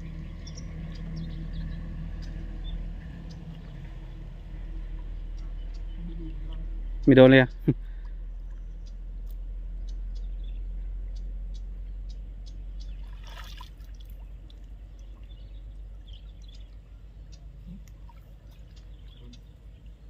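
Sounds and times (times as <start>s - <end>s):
water trickling and dripping: 12.5s - 20.0s
water splash: 13.0s - 14.2s.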